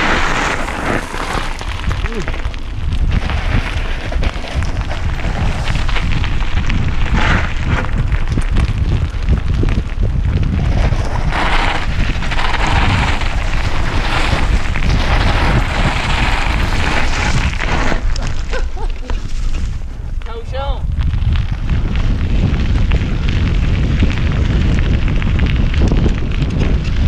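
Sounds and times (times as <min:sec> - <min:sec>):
tyres crunching over gravel: 0:00.0 - 0:20.4
wind buffeting microphone: 0:00.0 - 0:27.0.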